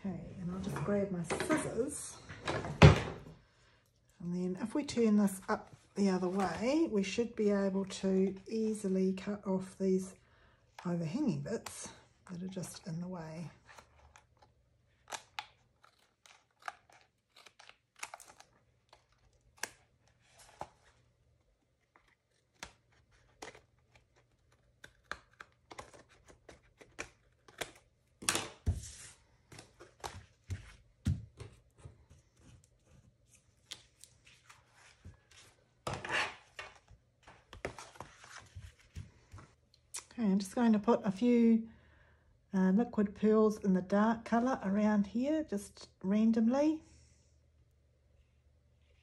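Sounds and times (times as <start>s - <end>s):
paper handling: 13.6s - 39.5s.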